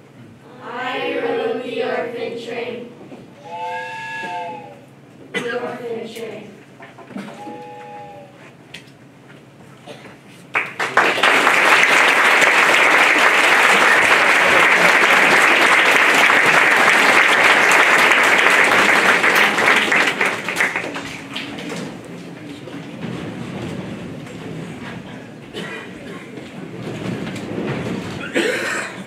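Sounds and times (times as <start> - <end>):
audience applauding: 10.5 - 22.1.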